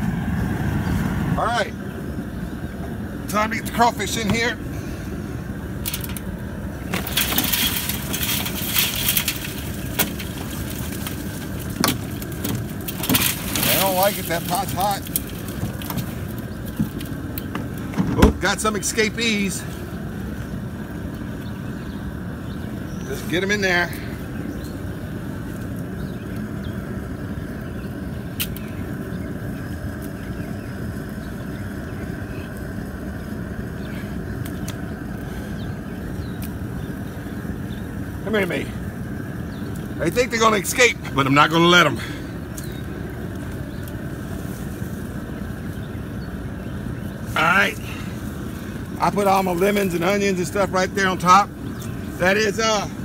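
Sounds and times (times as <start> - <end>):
propane burner roaring: 0.0 - 53.0
crawfish shells clattering: 5.8 - 18.4.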